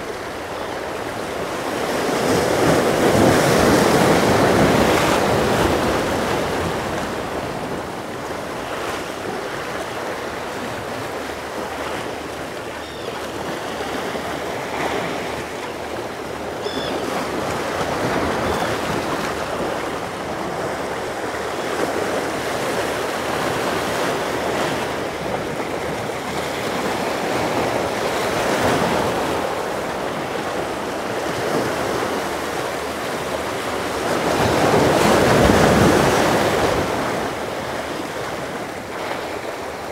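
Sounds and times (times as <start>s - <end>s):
waves washing against a jetty: 0.0s - 39.9s.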